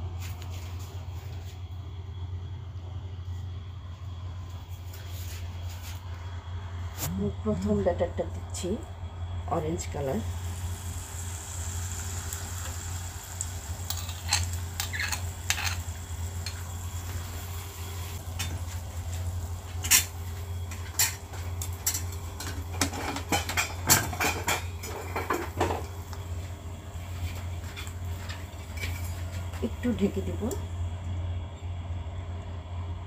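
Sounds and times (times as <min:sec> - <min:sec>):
steady low hum: 0:00.0 - 0:33.0
batter sizzling in hot oil: 0:09.7 - 0:30.5.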